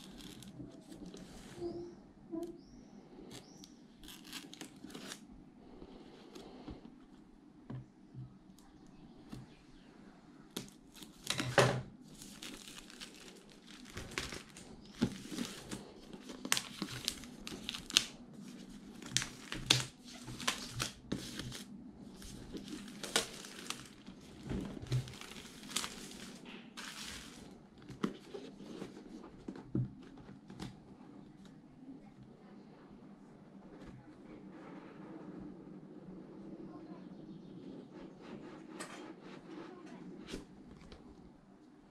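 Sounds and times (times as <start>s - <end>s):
plastic film crinkling and tearing: 0.0s - 1.3s, 4.0s - 5.3s, 10.6s - 27.6s.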